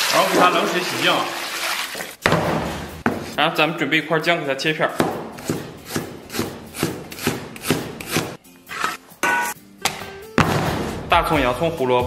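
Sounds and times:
cleaver chopping on wooden board: 5.0s - 8.4s.

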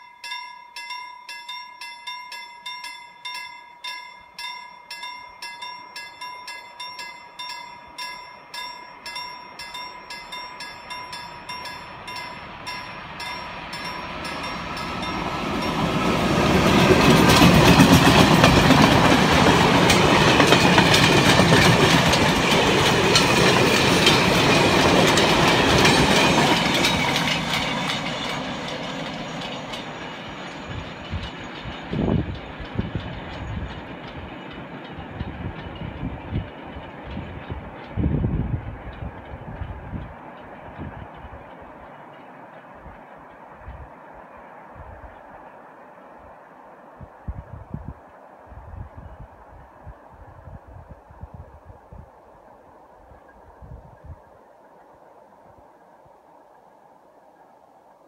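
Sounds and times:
level crossing warning bell: 0.0s - 17.4s
freight train rumbling past: 4.4s - 56.8s.

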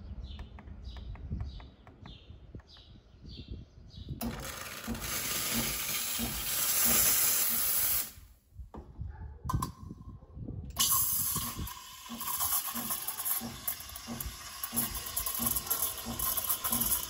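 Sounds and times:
loud hiss of steam: 5.0s - 8.3s.

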